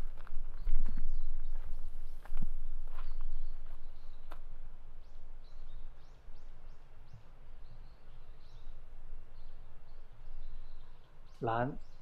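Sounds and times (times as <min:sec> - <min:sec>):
small birds chirping: 0:00.0 - 0:12.0
soft footsteps on path: 0:00.0 - 0:12.0.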